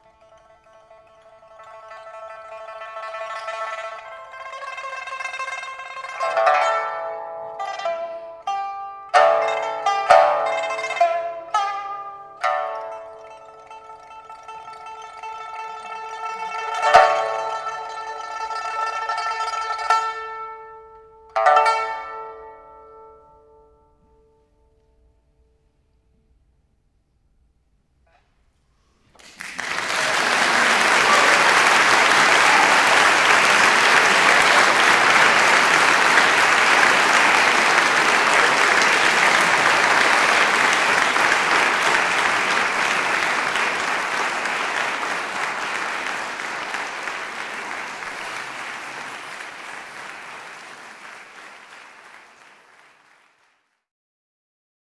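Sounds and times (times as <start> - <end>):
audience applauding: 0.0 - 6.8, 12.4 - 19.8, 29.2 - 53.8.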